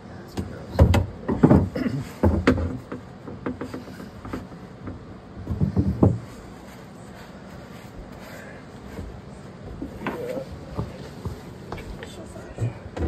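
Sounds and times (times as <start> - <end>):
plumbing parts clattering: 0.4 - 6.6.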